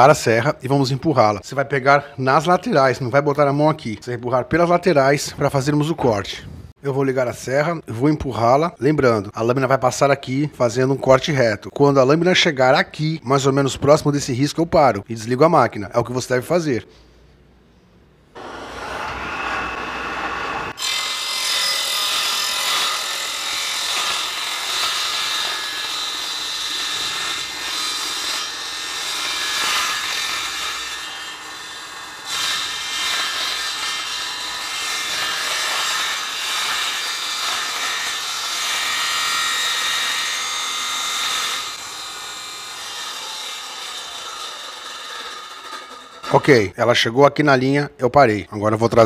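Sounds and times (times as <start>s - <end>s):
table saw starting up: 18.4s - 26.6s, 40.7s - 46.5s
table saw cutting hardboard: 18.4s - 46.5s.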